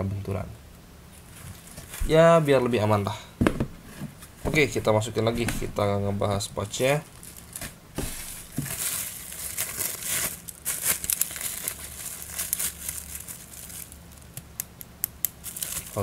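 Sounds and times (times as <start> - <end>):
plastic wrapping crinkling: 6.7 - 14.4, 15.3 - 16.0.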